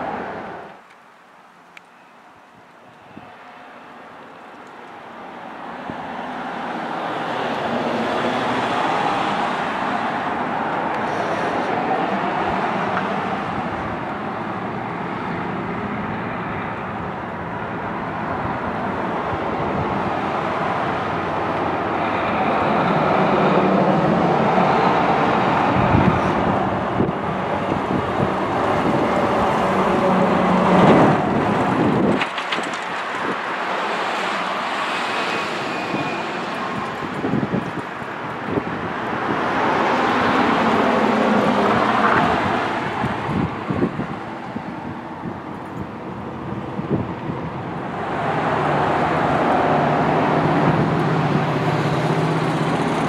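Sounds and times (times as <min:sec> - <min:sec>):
street traffic: 0:00.0 - 0:53.0
truck diesel engine passing: 0:03.4 - 0:53.0.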